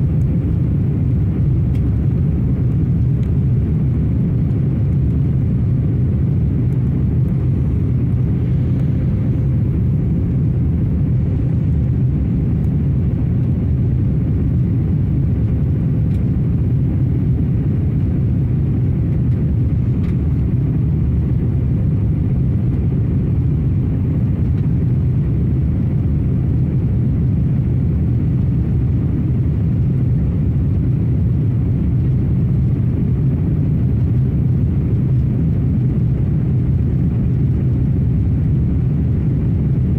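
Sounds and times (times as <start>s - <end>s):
airliner cabin engine rumble: 0.0s - 39.9s.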